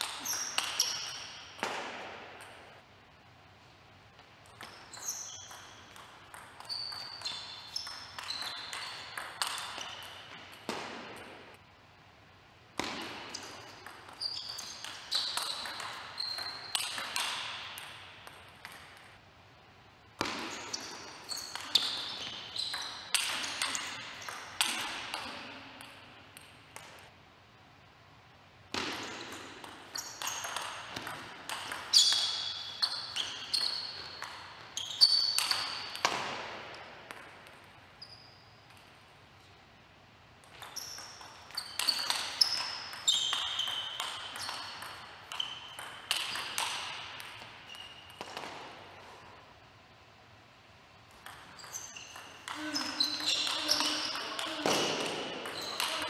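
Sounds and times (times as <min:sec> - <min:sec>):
short high squeaks: 0:51.6 - 0:54.6.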